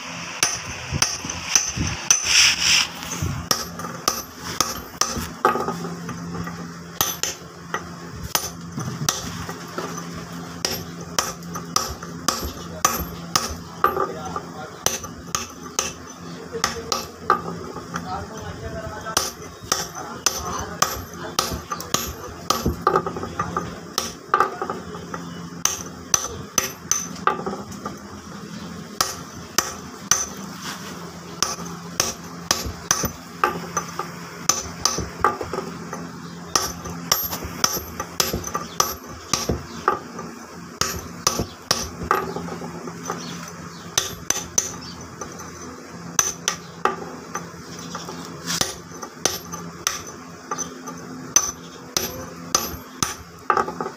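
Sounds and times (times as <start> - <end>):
hammer tapping steel chisel on stone: 10.6 - 16.0, 19.2 - 27.5, 31.4 - 35.6, 36.6 - 40.2, 40.8 - 45.6, 46.2 - 53.9.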